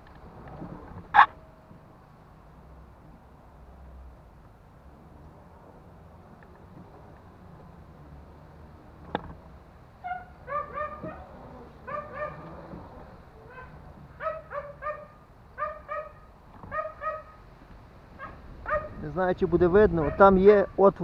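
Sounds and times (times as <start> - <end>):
dog yapping: 1.1 - 1.4, 10.0 - 12.8, 13.4 - 17.4, 18.2 - 19.0, 20.0 - 20.3.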